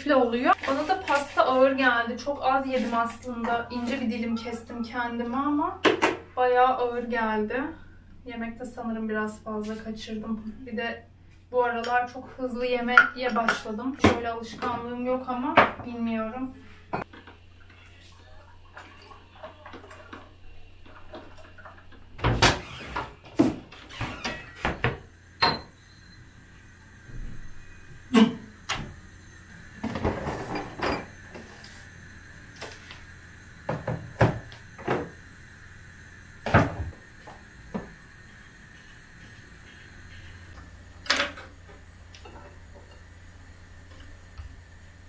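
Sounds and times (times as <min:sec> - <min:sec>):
cupboard doors opening and closing: 0:22.2 - 0:25.7.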